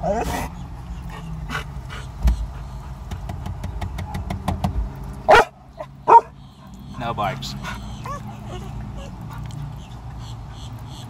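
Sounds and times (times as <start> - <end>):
low car hum: 0.0 - 11.0
dog barking: 5.3 - 6.4.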